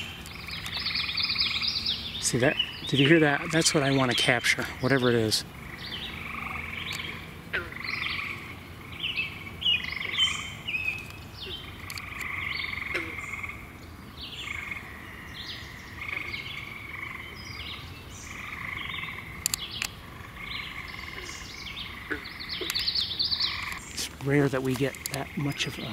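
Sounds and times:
sharp clicks: 0:00.0 - 0:00.9, 0:06.4 - 0:07.1, 0:11.8 - 0:12.4, 0:19.3 - 0:20.0, 0:22.1 - 0:25.8
frogs calling: 0:00.0 - 0:25.9.

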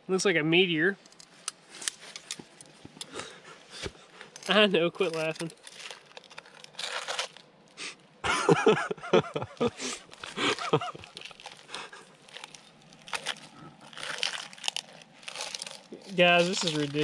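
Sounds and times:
people laughing: 0:08.2 - 0:12.1.

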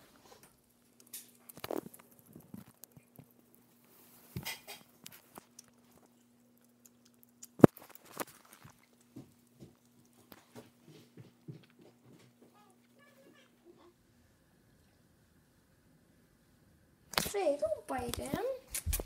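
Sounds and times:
cats chewing food: 0:00.0 - 0:13.9.

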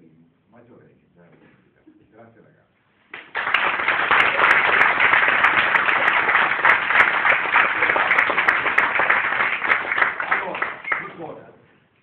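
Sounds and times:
people applauding: 0:03.1 - 0:11.4.

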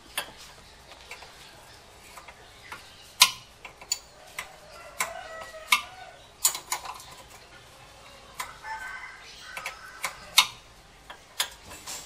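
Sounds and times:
metal tools clicking and clinking: 0:03.2 - 0:08.5.

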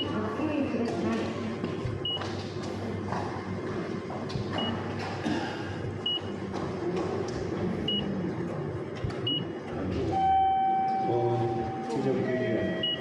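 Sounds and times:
steady background noise: 0:00.0 - 0:13.0
short high key-press beeps: 0:12.8 - 0:13.0.

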